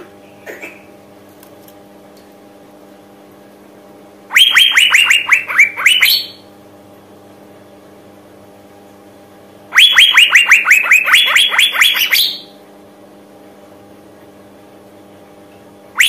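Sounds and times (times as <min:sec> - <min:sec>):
faint steady hum: 0:00.0 - 0:16.0
bird calling sharp sliding notes: 0:04.3 - 0:06.4, 0:09.8 - 0:12.5.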